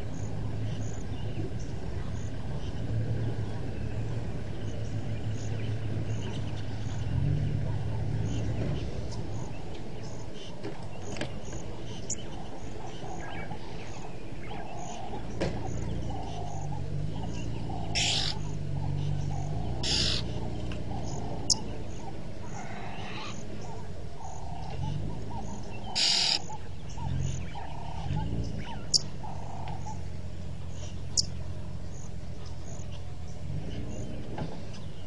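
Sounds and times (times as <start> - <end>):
harsh bird calls: 0.0 - 35.0.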